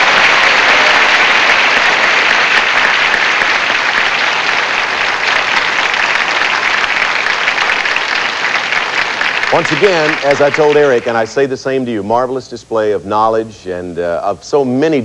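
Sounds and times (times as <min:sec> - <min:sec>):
audience applauding: 0:00.0 - 0:11.4.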